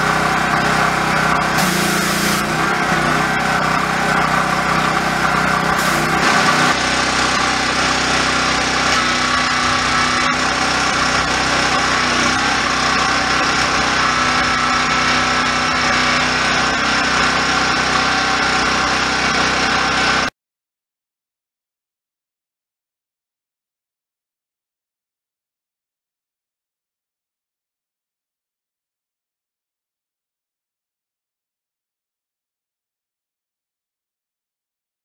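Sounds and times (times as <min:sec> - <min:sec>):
pressure washer engine running: 0:00.0 - 0:20.3
water spray hissing on concrete: 0:01.6 - 0:02.6, 0:05.7 - 0:06.8.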